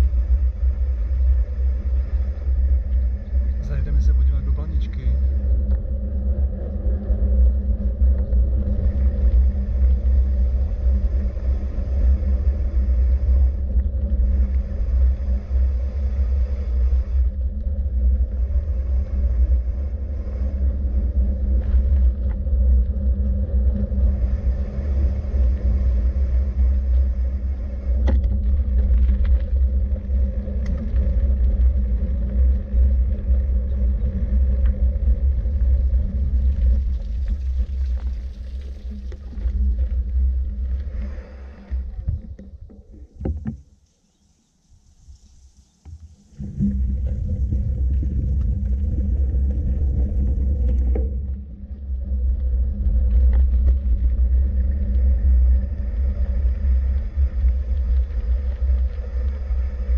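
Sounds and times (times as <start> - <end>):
faint hum: 0.0 - 59.9
low rumble of travel noise: 0.0 - 59.9
faint clicks: 27.9 - 35.0.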